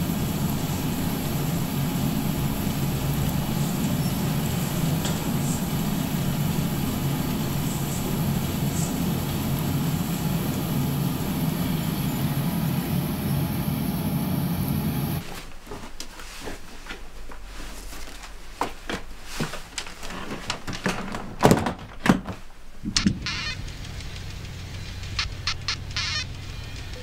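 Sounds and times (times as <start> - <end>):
steady rumbling: 0.0 - 15.2, 22.6 - 27.0
rustling and light knocks: 15.2 - 23.2.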